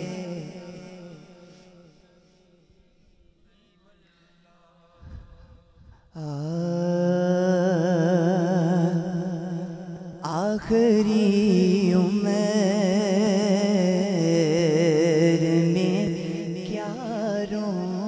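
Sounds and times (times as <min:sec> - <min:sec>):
man singing with vibrato: 0:00.0 - 0:01.9, 0:06.1 - 0:18.0.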